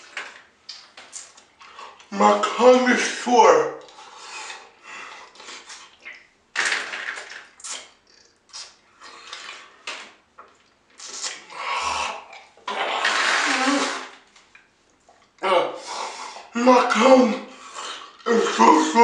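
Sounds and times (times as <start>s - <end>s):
man hissing breaths through teeth: 15.8s - 16.5s
man groaning: 18.2s - 19.0s.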